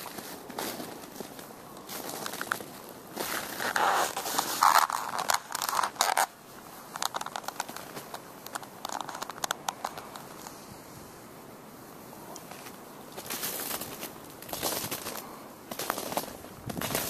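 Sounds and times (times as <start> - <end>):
footsteps crunching in snow: 0.0 - 9.3, 12.4 - 17.0.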